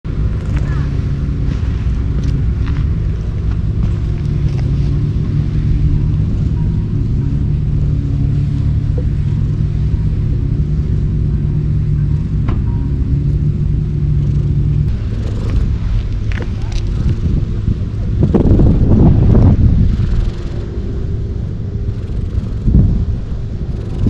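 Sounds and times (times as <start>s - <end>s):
cat purring: 14.2s - 17.4s, 21.8s - 24.0s.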